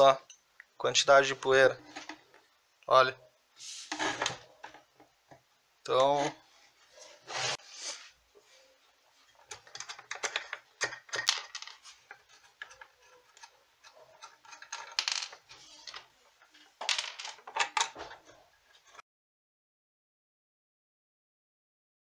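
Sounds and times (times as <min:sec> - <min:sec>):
metallic clicks and rattles: 0:09.4 - 0:15.5.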